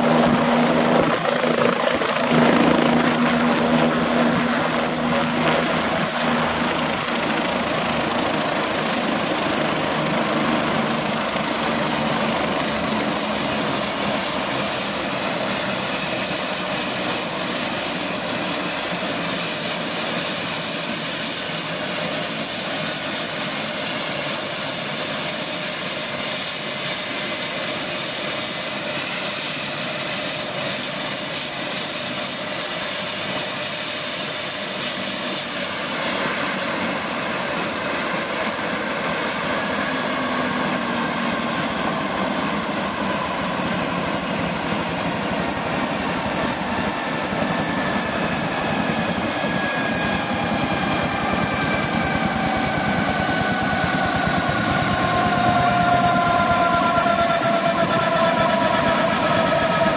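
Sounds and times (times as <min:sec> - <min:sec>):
helicopter idling with high whine: 0:00.0 - 0:59.9.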